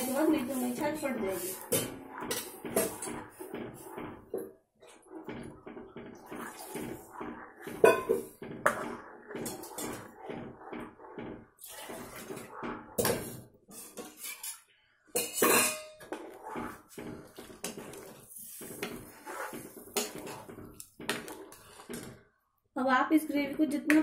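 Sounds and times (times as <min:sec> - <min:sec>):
ladle scraping a metal pan: 0:00.0 - 0:03.9, 0:06.4 - 0:10.7, 0:11.6 - 0:14.6, 0:15.2 - 0:22.2.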